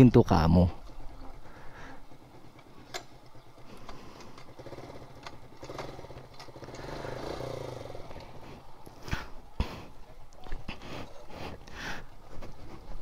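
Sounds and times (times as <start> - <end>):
motorcycle engine running: 0.8 - 9.6.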